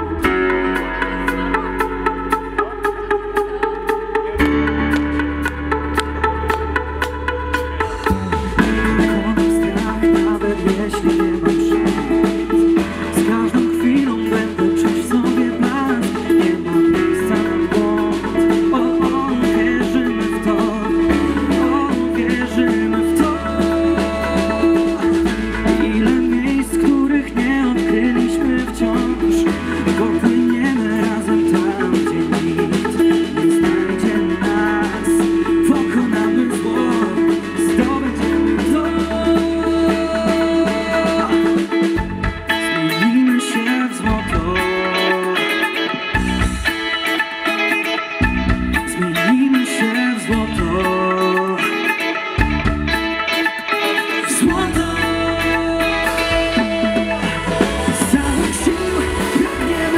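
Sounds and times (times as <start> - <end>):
electric bass: 0.0 - 43.0, 44.0 - 45.1, 45.9 - 49.3, 50.3 - 51.4, 52.4 - 53.4, 54.3 - 59.9
drum kit: 0.0 - 59.9
electric guitar: 0.0 - 59.9.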